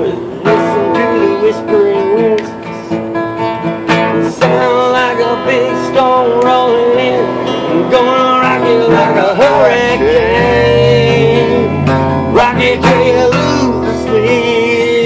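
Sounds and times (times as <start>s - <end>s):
acoustic guitar strumming: 0.0s - 15.0s
wavering held melody notes: 9.5s - 14.4s.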